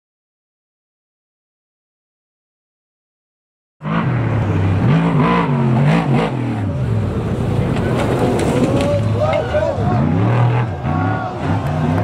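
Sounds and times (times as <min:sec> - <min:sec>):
truck engine revving: 0:03.8 - 0:12.0.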